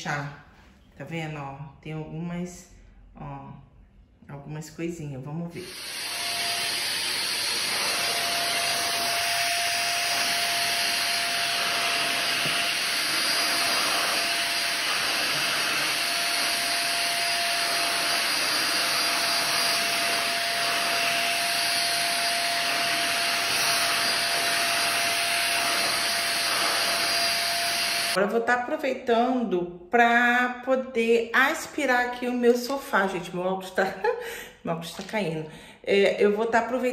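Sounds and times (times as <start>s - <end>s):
vacuum cleaner running: 5.5s - 28.2s.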